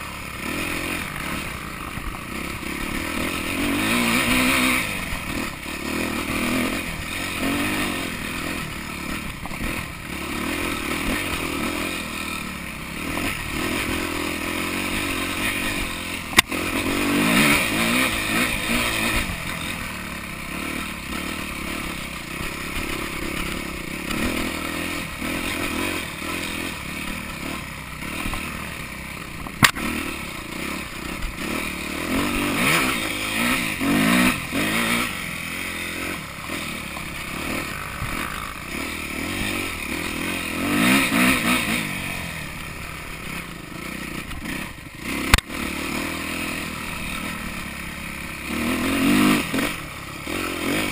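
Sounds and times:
motorcycle engine revving: 0.0s - 50.9s.

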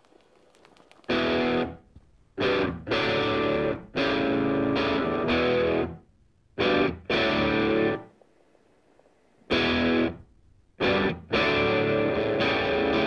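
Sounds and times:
distorted electric guitar chords: 2.4s - 6.0s, 6.6s - 8.0s, 9.5s - 10.2s, 10.8s - 13.0s.

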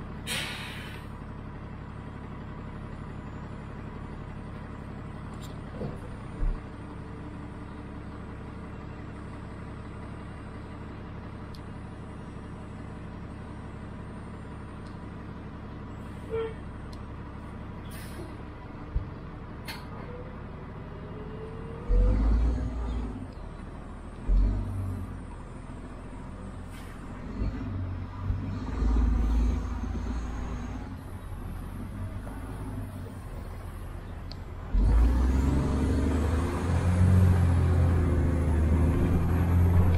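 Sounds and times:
bus engine idling: 0.0s - 39.9s
bus rumbling and thumping: 0.0s - 39.9s
air brake hiss: 0.2s - 1.1s, 17.9s - 18.4s.

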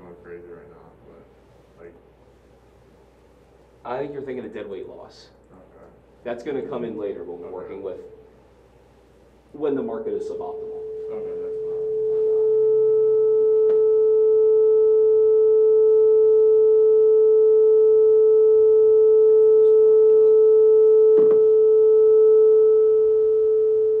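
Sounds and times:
steady electronic tone: 9.6s - 24.0s.

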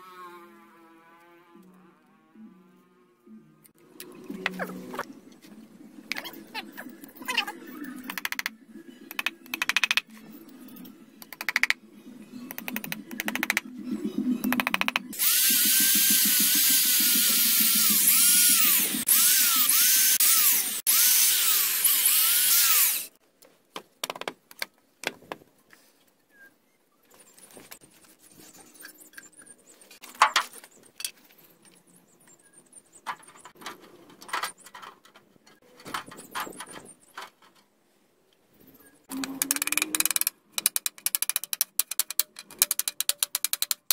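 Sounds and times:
electric drill boring into wood: 14.6s - 23.1s.

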